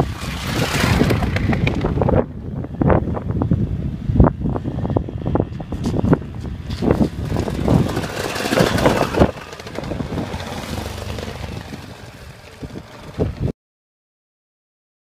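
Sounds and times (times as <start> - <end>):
motorbikes riding past on gravel: 0.0 - 2.2, 5.6 - 13.5
wind buffeting microphone: 0.0 - 13.5.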